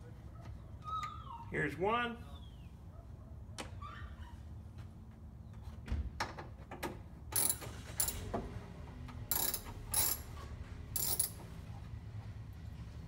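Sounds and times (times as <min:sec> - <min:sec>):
ratchet wrench clicking: 0:07.4 - 0:08.2, 0:09.3 - 0:10.3, 0:11.0 - 0:11.4.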